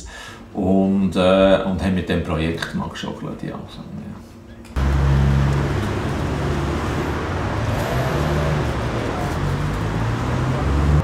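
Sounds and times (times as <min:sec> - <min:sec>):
low engine hum: 0:04.8 - 0:11.0
traffic rumble: 0:04.8 - 0:11.0.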